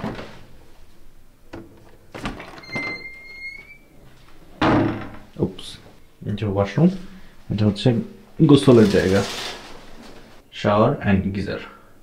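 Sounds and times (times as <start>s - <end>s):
wooden door opening: 1.5s - 4.0s, 4.6s - 5.4s
fridge door opening: 1.6s - 3.8s.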